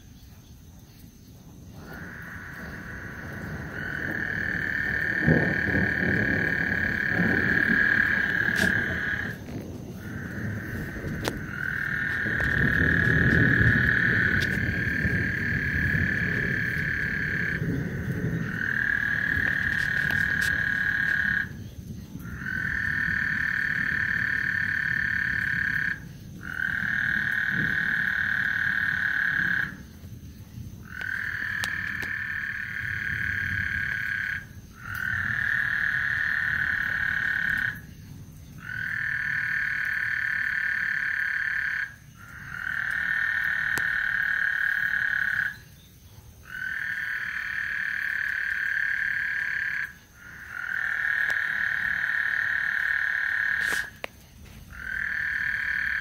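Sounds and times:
frogs trilling: 0.0 - 56.0.

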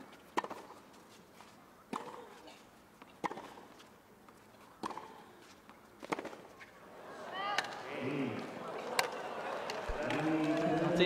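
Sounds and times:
tennis racket hitting ball: 0.4 - 0.8, 1.9 - 2.4, 3.0 - 3.8, 4.8 - 5.2, 6.0 - 6.4
faint court ambience: 0.8 - 11.0.

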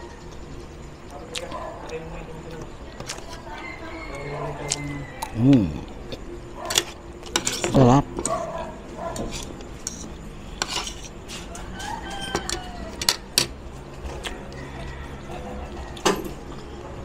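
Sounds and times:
rooster crowing: 3.2 - 5.9, 11.3 - 13.3, 14.0 - 16.4
cutlery clinking on a plate: 6.7 - 8.4, 11.8 - 13.6.

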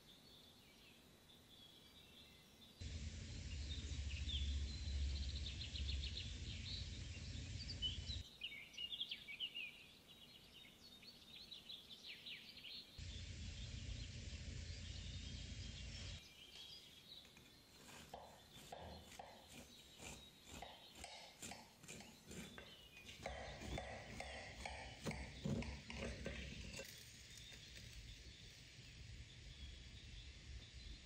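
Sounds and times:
outdoor background noise: 0.0 - 31.0
small birds chirping: 0.0 - 31.0
low rumble: 2.8 - 8.2, 13.0 - 16.2.

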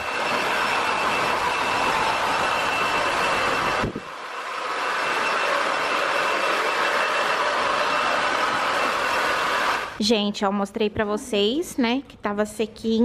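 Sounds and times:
hair dryer blowing: 0.0 - 10.0.

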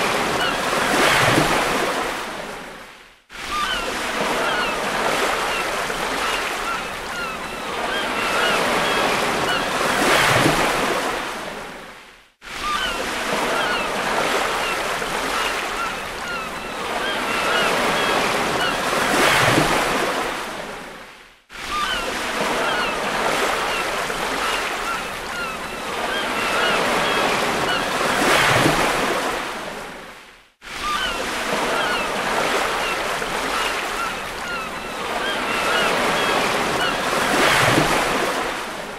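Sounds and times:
waves breaking on beach: 0.0 - 38.9.

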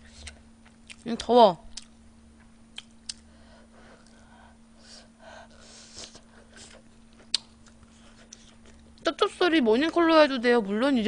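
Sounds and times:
person eating close to microphone: 0.0 - 1.1, 1.7 - 2.0, 2.7 - 3.3, 5.7 - 8.9
faint steady hum: 0.0 - 11.0
soft breathing puffs: 3.3 - 7.0.

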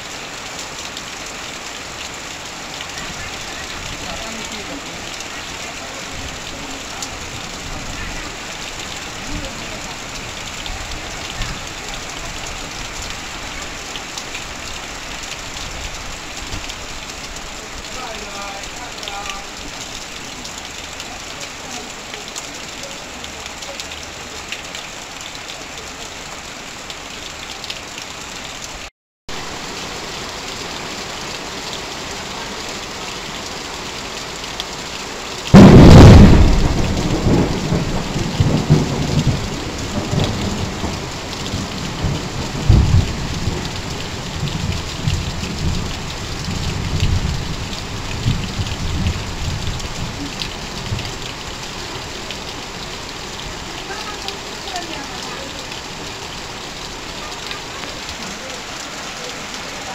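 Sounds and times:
heavy rain on tin sheets: 0.0 - 59.9
water streaming off roof: 0.0 - 59.9
thunderclap and rumbling: 35.5 - 51.4.

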